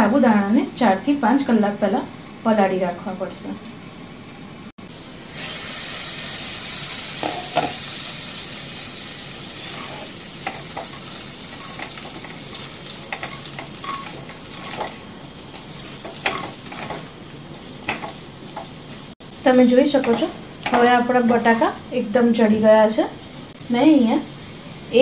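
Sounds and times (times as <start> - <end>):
potatoes sizzling in oil: 4.8 - 25.0
spatula scraping and tapping pan: 9.6 - 17.1, 17.8 - 18.8, 20.0 - 21.6.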